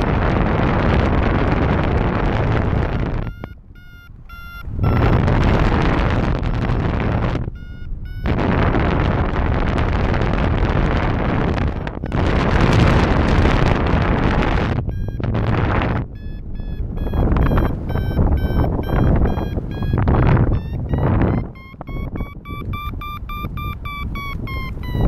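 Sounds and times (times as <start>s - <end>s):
wind buffeting microphone: 0.0s - 25.0s
short electronic beeps: 2.7s - 9.0s, 11.6s - 13.6s, 14.4s - 25.0s.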